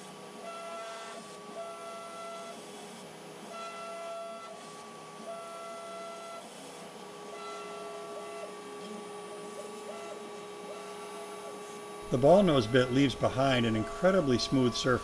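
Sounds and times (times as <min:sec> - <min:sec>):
router machine whine: 0:00.0 - 0:15.0
high cutting tones: 0:12.0 - 0:15.0.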